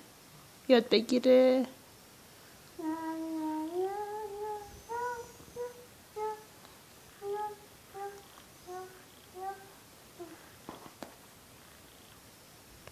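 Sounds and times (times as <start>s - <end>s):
toddler singing: 2.8s - 6.6s, 7.2s - 10.5s.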